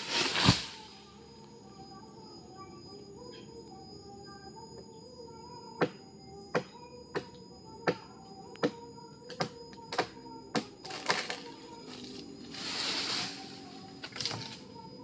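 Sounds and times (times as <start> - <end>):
faint background music: 0.0 - 15.0
branch crackling as it breaks: 10.8 - 11.4.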